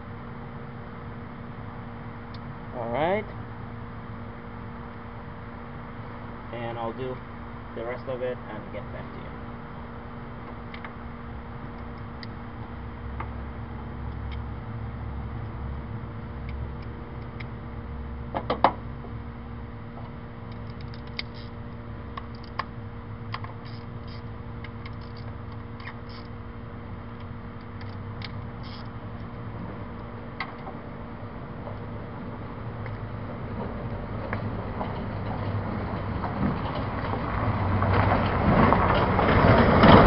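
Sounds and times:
steady low hum: 0:00.0 - 0:40.0
ratchet wrench clicking: 0:27.8 - 0:28.9.

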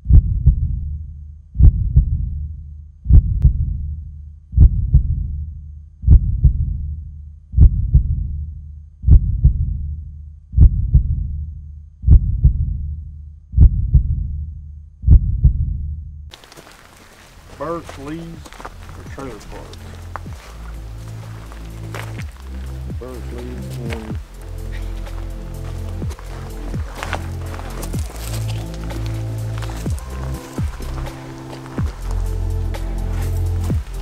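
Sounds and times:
heartbeat thumps: 0:00.0 - 0:00.8, 0:01.6 - 0:02.4, 0:03.0 - 0:03.8, 0:04.6 - 0:05.3, 0:06.0 - 0:06.8, 0:07.6 - 0:08.4, 0:09.0 - 0:09.9, 0:10.6 - 0:11.4, 0:12.0 - 0:12.8, 0:13.6 - 0:14.4, 0:15.0 - 0:15.8, 0:16.5 - 0:34.0.

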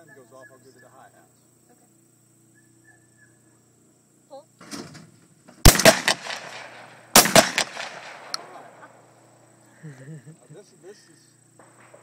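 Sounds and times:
shotgun shot with echoes: 0:05.7 - 0:08.9.

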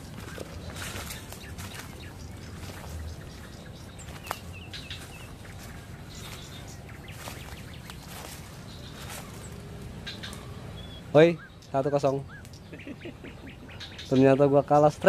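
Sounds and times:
footsteps crunching through dry leaves: 0:00.0 - 0:11.3
small bird chirps: 0:00.0 - 0:15.0.

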